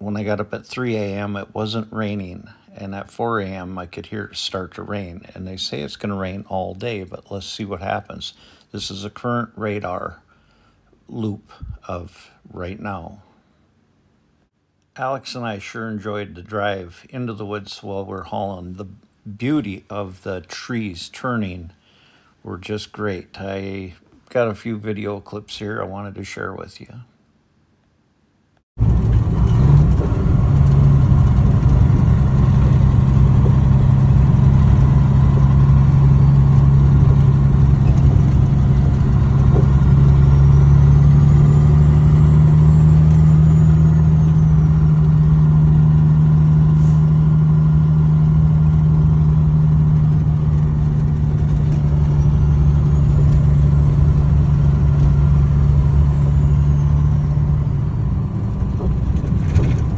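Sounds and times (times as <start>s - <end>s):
driving on gravel road: 28.8s - 59.9s
truck engine running: 28.8s - 59.9s.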